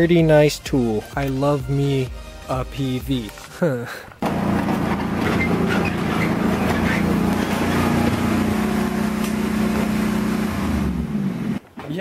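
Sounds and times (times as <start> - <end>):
lawn tractor engine running: 4.2 - 11.7.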